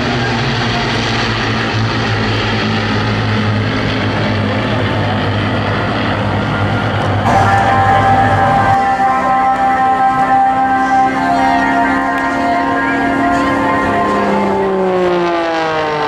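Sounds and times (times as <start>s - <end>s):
propeller aircraft engines droning: 0.0s - 16.0s
music: 7.2s - 14.6s.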